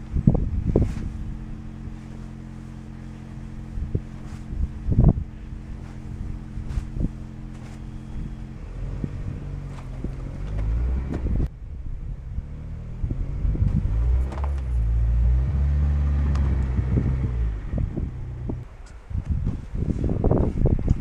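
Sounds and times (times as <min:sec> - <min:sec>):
car engine idling: 0:00.0 - 0:12.4
snow brush scraping car: 0:00.2 - 0:11.1.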